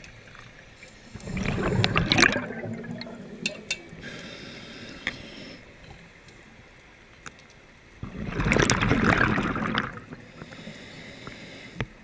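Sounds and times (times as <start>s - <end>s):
low water rush: 0.7s - 7.0s
diver regulator hiss: 4.0s - 5.8s, 10.3s - 12.0s.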